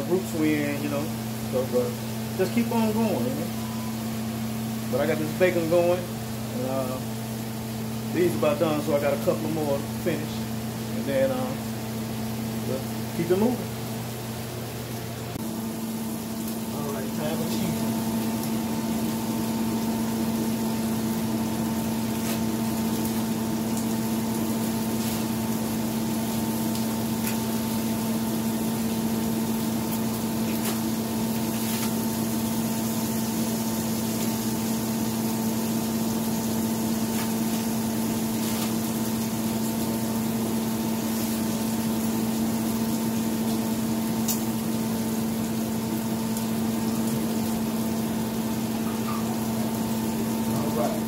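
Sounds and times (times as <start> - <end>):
appliance motor hum: 0.0 - 51.0.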